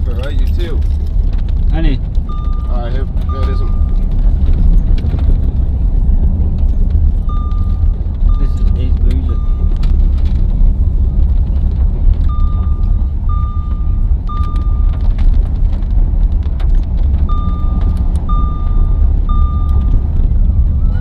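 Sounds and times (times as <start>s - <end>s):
low rumble inside car cabin: 0.0s - 21.0s
car warning chime beeping: 2.3s - 4.8s, 7.2s - 10.2s, 12.2s - 15.1s, 17.3s - 21.0s.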